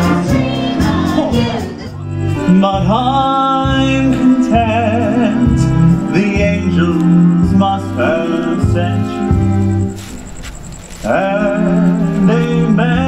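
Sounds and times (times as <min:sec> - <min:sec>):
musical accompaniment with bass line: 0:00.0 - 0:10.1
person singing with vibrato: 0:00.0 - 0:10.1, 0:11.0 - 0:13.0.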